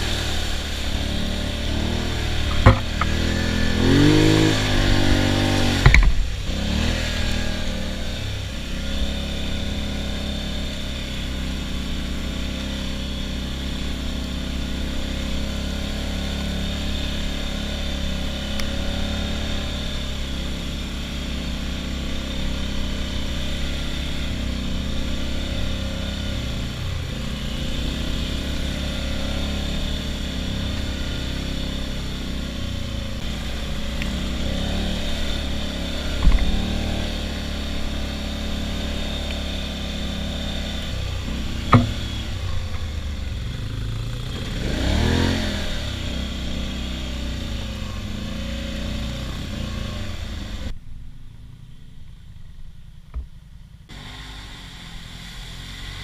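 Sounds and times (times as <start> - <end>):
atv engine running: 0.0 - 56.0
sharp knocks: 2.4 - 3.2, 41.7 - 42.1.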